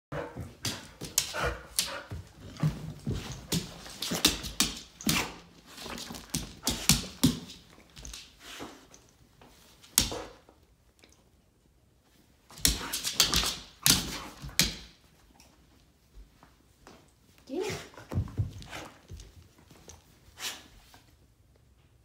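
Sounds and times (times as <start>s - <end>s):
dog nails clicking on wood floor: 0.6s - 11.2s, 12.5s - 15.6s.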